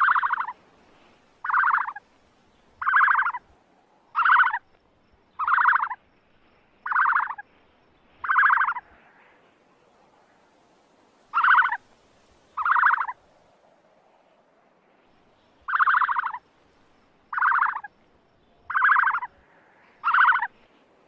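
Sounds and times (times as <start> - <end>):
bird rattling calls: 0.0 - 0.6, 1.4 - 2.0, 2.8 - 3.4, 4.2 - 4.6, 5.4 - 6.0, 6.8 - 7.4, 8.2 - 8.8, 11.3 - 11.8, 12.6 - 13.2, 15.7 - 16.4, 17.3 - 17.9, 18.7 - 19.3, 20.0 - 20.5.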